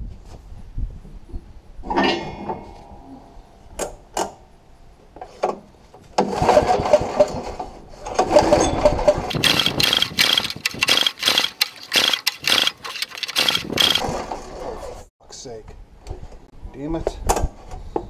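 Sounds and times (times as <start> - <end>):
engine cranking pulls: 8.2 - 14.2
sharp mechanical clicks: 9.3 - 14.1.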